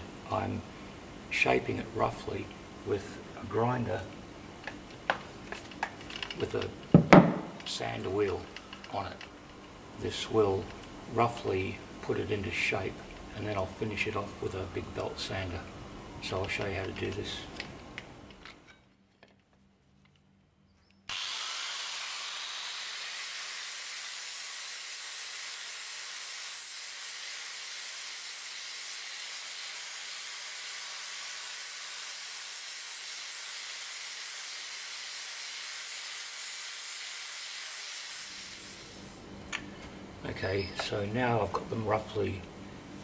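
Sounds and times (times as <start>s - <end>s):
angle grinder sanding wood: 21.1s - 39.2s.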